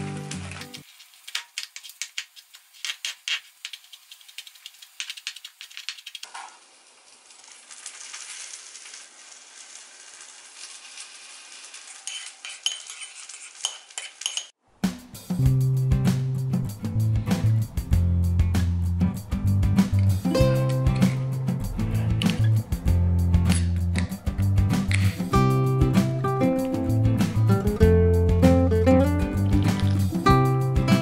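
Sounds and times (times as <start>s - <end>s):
plastic bag crinkling: 0.0s - 14.0s
spoon stirring in ceramic bowl: 12.0s - 14.6s.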